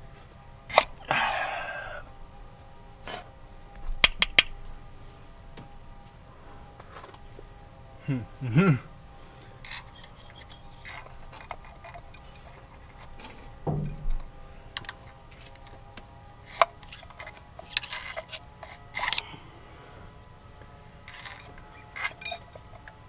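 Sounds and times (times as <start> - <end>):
metal tool clicking and scraping: 9.6 - 14.0, 16.5 - 19.2, 21.1 - 23.0
dull thump: 13.6 - 14.3.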